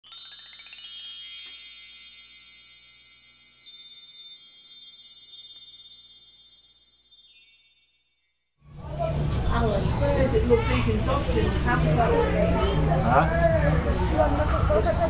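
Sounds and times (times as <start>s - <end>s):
high chimes ringing: 0.0s - 8.6s.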